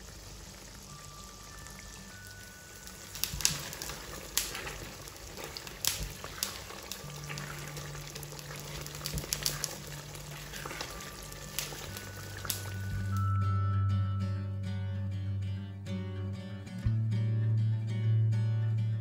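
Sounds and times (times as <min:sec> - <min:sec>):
sauce simmering and bubbling: 0:00.0 - 0:13.4.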